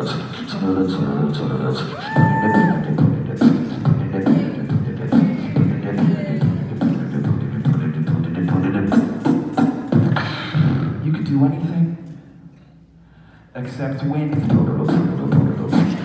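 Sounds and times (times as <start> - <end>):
beatboxing kicks and clicks: 2.1 - 11.0, 14.3 - 16.0.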